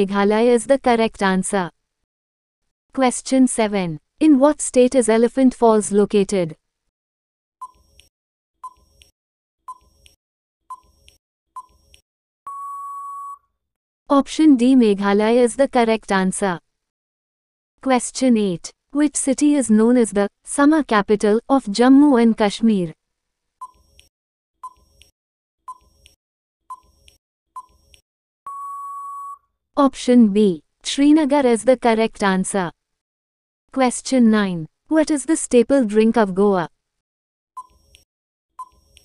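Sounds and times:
long steady beep: 0:12.5 - 0:13.4, 0:28.5 - 0:29.4
short beeps: 0:12.5 - 0:13.5, 0:28.5 - 0:29.4.

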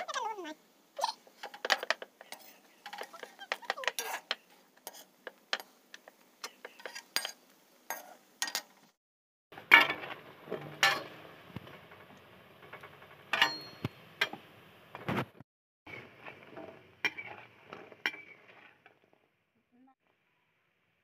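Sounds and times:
oil sizzling: 0:00.0 - 0:09.0, 0:09.6 - 0:15.0, 0:15.9 - 0:19.4
metal skimmer clinking on pan: 0:13.4 - 0:13.9.

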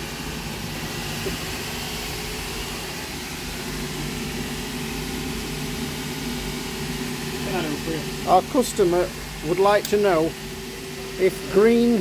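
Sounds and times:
workshop machinery hum: 0:00.0 - 0:12.0.

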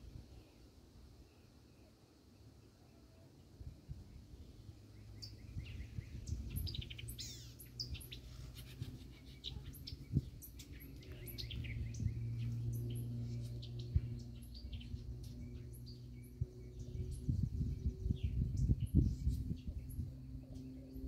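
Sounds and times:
songbirds chirping: 0:00.0 - 0:21.0
low steady rumble: 0:03.4 - 0:21.0.

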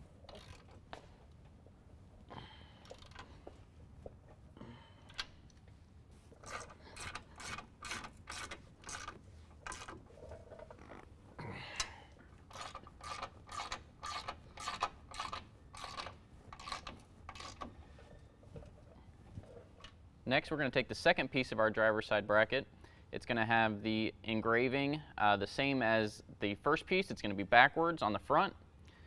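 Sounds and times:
hand ratchet clicking: 0:00.2 - 0:01.4, 0:02.8 - 0:03.4, 0:06.4 - 0:10.0, 0:12.4 - 0:17.7.

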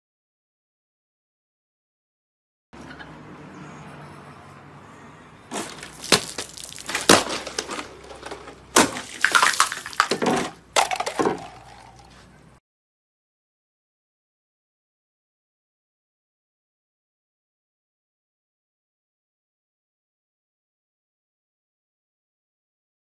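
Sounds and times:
sword slashing plastic bottles: 0:05.5 - 0:11.8
water splashing: 0:05.5 - 0:12.1.

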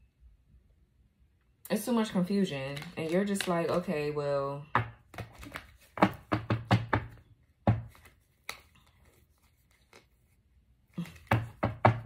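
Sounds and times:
cards snapping and tapping on table: 0:04.7 - 0:08.7.

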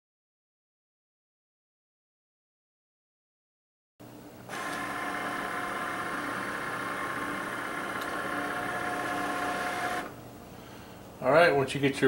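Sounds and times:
cutting machine motor humming: 0:04.5 - 0:10.2.

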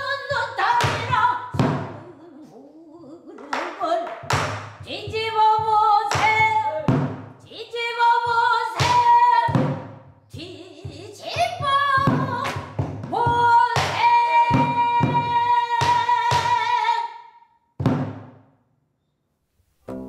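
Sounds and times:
drum strikes: 0:00.9 - 0:02.0, 0:04.2 - 0:07.4, 0:08.3 - 0:10.3, 0:11.6 - 0:16.6, 0:17.8 - 0:18.4.

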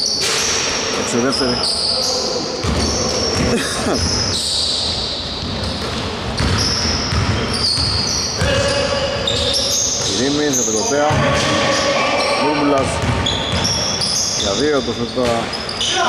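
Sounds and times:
sneakers squeaking: 0:00.0 - 0:16.0
players calling out: 0:01.2 - 0:16.0
basketball bouncing: 0:02.6 - 0:04.4, 0:05.4 - 0:14.3.

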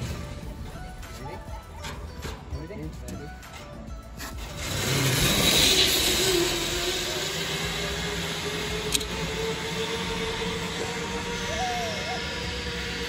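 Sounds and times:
zipline pulleys whirring on cable: 0:03.3 - 0:13.0.

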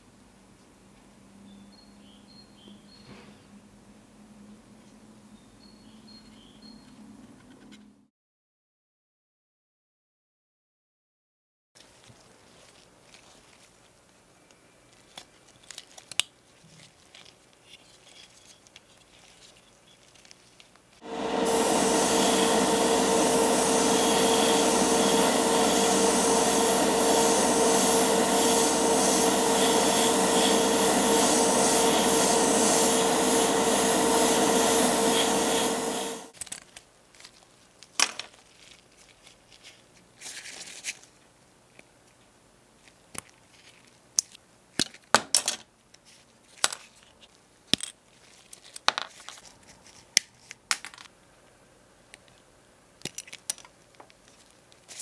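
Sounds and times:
small electric motor humming: 0:21.0 - 0:36.3
plastic parts clicking: 0:53.0 - 0:54.2.

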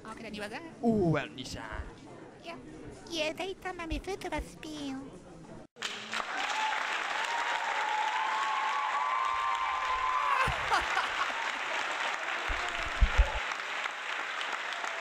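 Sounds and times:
audience applauding: 0:05.8 - 0:15.0.

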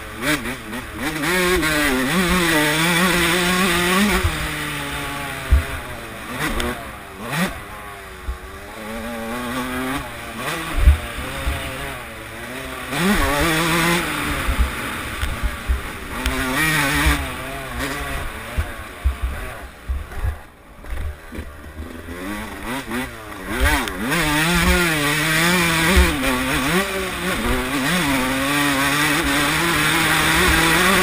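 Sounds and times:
dirt bike engine revving: 0:00.0 - 0:31.0
short low thumps: 0:05.4 - 0:05.9, 0:10.8 - 0:11.6, 0:14.3 - 0:16.2, 0:17.0 - 0:21.6.

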